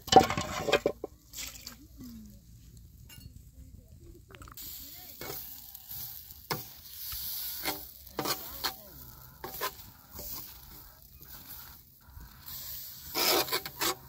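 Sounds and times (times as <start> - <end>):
metal spatula scraping on griddle: 0.0 - 1.8, 4.6 - 14.0
steady sizzling hiss: 0.0 - 14.0.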